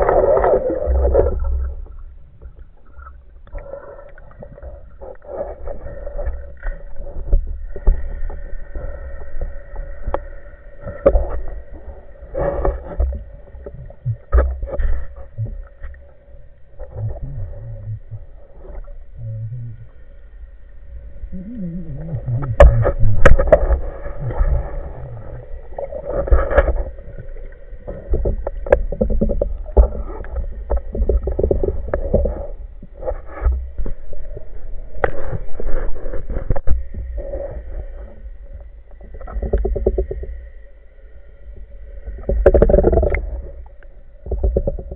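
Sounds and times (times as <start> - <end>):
faint steady hum: 0.0 - 44.9
water movement: 0.0 - 44.9
muffled underwater knocks and clicks: 10.8 - 11.8, 12.4 - 19.9, 21.4 - 37.6, 38.5 - 40.5, 42.0 - 44.9.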